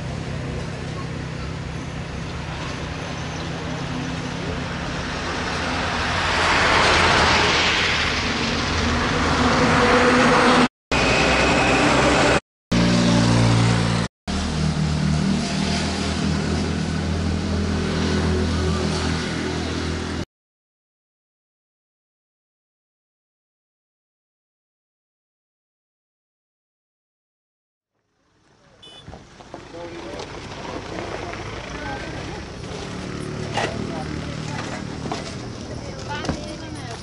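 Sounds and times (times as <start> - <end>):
vehicle engine hum: 0.0 - 20.2, 28.0 - 37.0
road noise: 0.0 - 20.3, 28.0 - 37.0.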